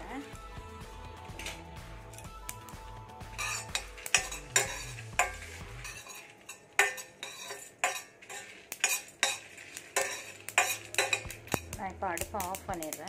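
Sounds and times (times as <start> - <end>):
spoon scraping steel pan: 3.2 - 13.0.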